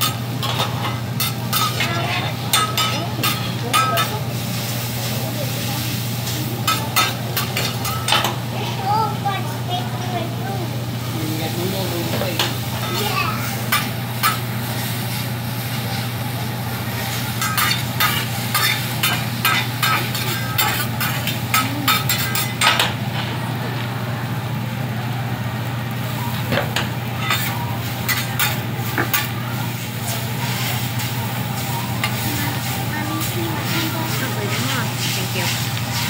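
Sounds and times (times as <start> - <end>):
metal spatulas scraping a griddle: 0.0 - 4.8, 6.2 - 8.4, 12.1 - 16.0, 17.0 - 22.9, 27.2 - 36.0
food sizzling: 0.0 - 36.0.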